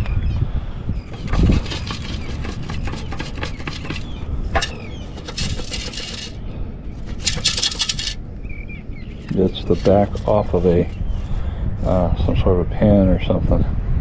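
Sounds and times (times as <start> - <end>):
metal scoop scraping wet sand: 1.1 - 6.4, 7.0 - 8.2, 9.2 - 10.8.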